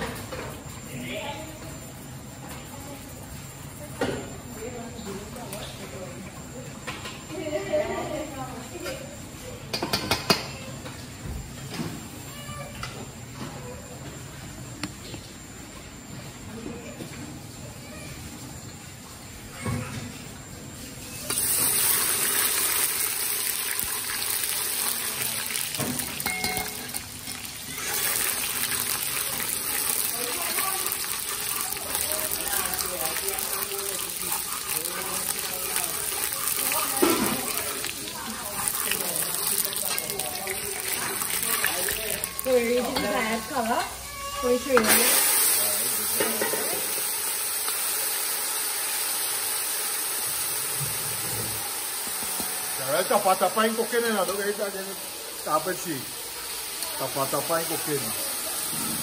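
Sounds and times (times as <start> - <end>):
food sizzling in hot oil: 18.1 - 59.0.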